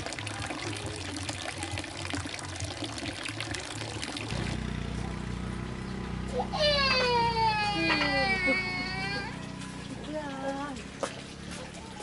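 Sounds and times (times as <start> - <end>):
water pouring into basin splashing: 0.0 - 5.1.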